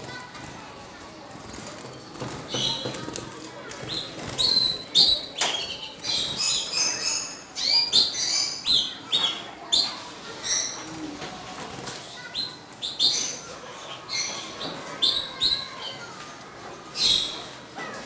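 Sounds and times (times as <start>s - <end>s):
wings fluttering: 0.0s - 5.1s
canaries chirping: 1.6s - 11.0s, 12.2s - 16.2s, 16.8s - 18.0s.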